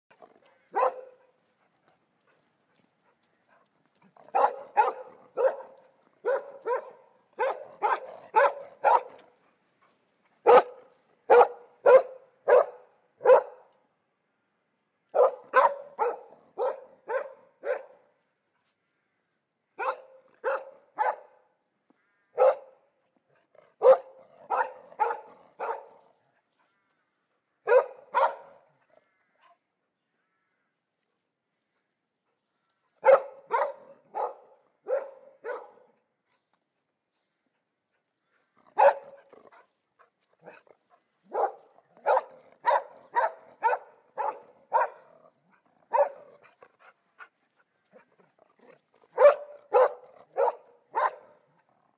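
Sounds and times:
dog barking: 0.7s - 1.3s, 4.3s - 9.3s, 10.4s - 13.7s, 15.1s - 18.1s, 19.8s - 21.4s, 22.4s - 22.8s, 23.8s - 26.0s, 27.7s - 28.7s, 33.0s - 36.0s, 38.8s - 39.2s, 41.2s - 45.1s, 45.9s - 46.5s, 49.2s - 51.4s.

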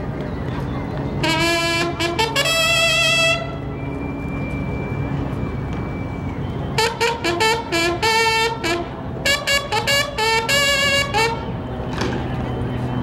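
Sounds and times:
bugles sounding a call: 1.2s - 3.7s, 6.7s - 11.6s.

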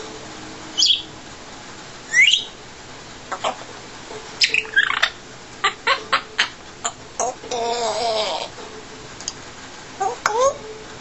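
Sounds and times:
parrot chirps: 0.8s - 1.1s, 2.1s - 2.6s, 3.3s - 3.7s, 4.4s - 8.5s
parrot whistling: 0.8s - 1.2s, 2.1s - 2.6s, 4.4s - 8.5s.

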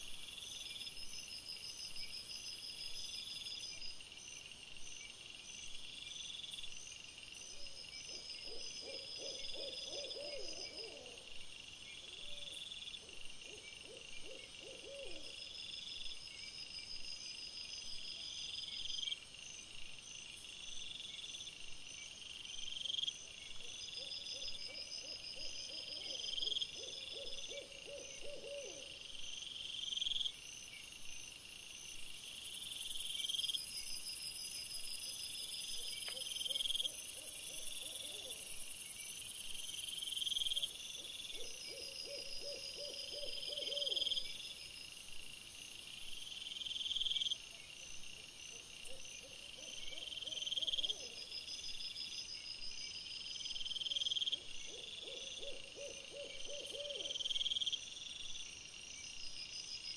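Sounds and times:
insects chirping: 0.0s - 59.9s
owl hooting: 25.7s - 28.9s, 41.4s - 44.2s, 54.7s - 57.2s.

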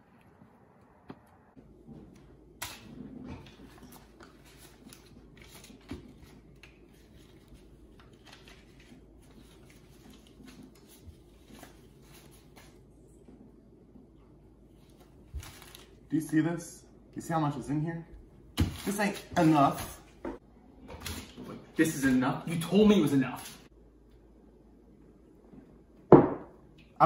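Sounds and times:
paper banknotes rustling: 3.7s - 12.8s.

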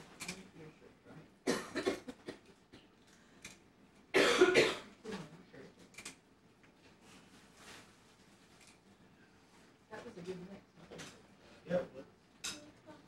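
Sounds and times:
person coughing: 1.5s - 2.4s, 4.2s - 4.9s.

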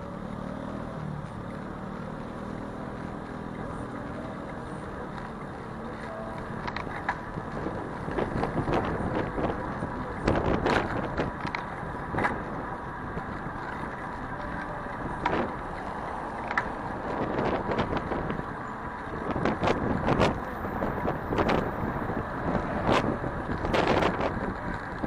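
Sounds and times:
bicycle riding rumble: 0.0s - 25.0s
street traffic: 0.0s - 25.0s.

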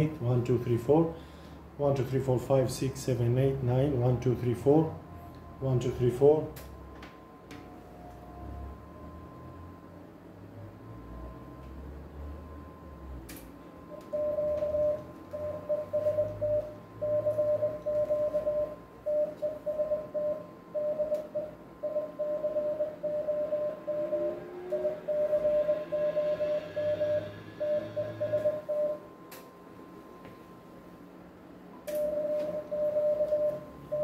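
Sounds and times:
morse code beeps: 13.9s - 29.1s, 31.9s - 34.0s.

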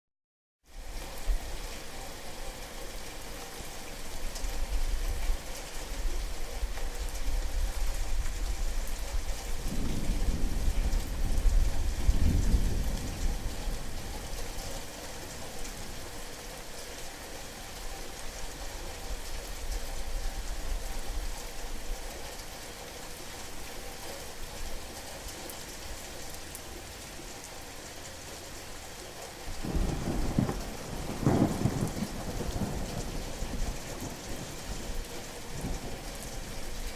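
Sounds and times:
heavy rain falling: 0.7s - 36.9s
low rumble of thunder: 7.5s - 16.1s, 29.5s - 36.9s.

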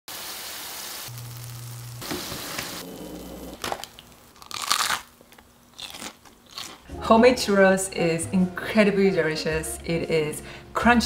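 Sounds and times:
food sizzling in hot oil: 0.1s - 2.8s
sharp crunching cracks: 3.6s - 6.8s.

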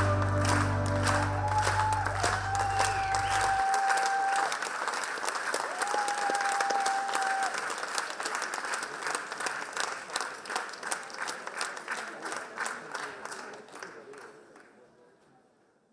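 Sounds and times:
audience applauding: 0.0s - 14.8s
held whistle: 1.4s - 4.4s.

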